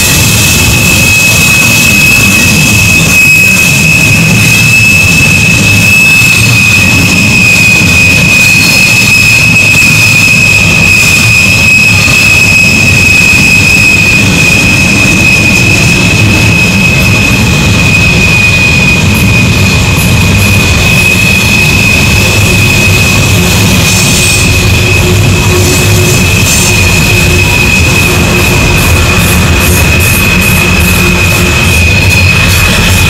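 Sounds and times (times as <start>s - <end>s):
high-pitched wheel squeal: 0.0s - 33.0s
train wheels rumbling on rails: 0.0s - 33.0s.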